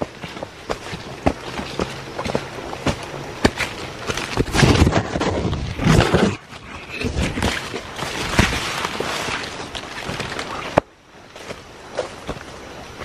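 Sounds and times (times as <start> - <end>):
footsteps on muddy trail: 0.0 - 13.0
leaves brushing past: 7.0 - 10.8.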